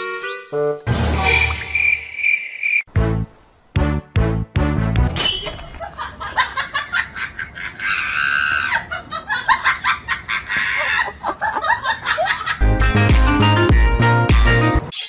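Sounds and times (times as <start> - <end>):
person laughing: 5.8 - 12.6
person squealing: 7.8 - 8.9.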